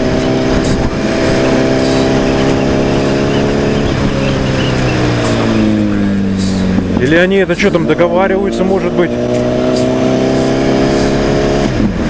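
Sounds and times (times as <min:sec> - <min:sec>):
wind rush: 0:00.0 - 0:07.4
motorcycle engine running: 0:00.0 - 0:12.0.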